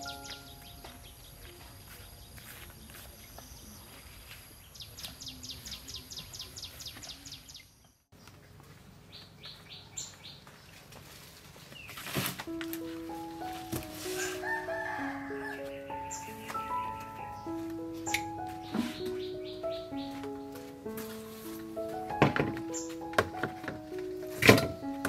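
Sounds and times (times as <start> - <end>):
small birds chirping: 0.0 - 11.0, 14.8 - 21.5.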